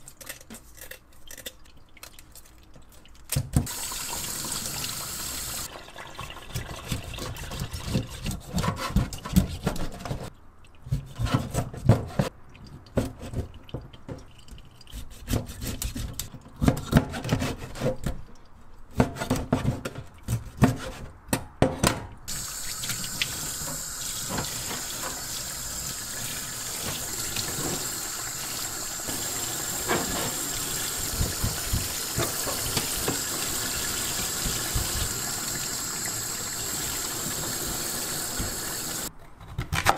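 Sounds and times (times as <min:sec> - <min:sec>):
tap water running into sink: 0:03.4 - 0:08.0, 0:22.3 - 0:39.1.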